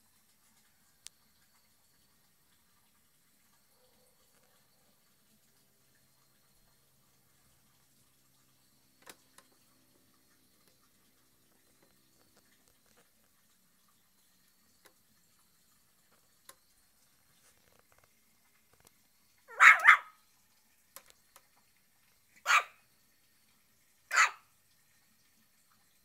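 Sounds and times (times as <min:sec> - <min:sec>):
puppy barking: 0:19.5 - 0:20.2, 0:22.4 - 0:22.8, 0:24.1 - 0:24.4.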